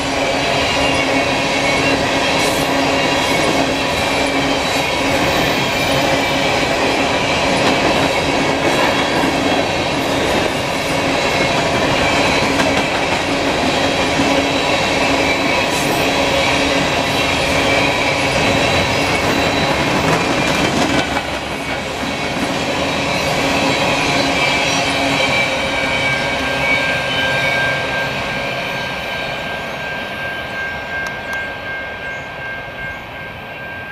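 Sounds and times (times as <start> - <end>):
train wheels rumbling on rails: 0.0 - 33.9
wheel squeal: 17.6 - 20.6.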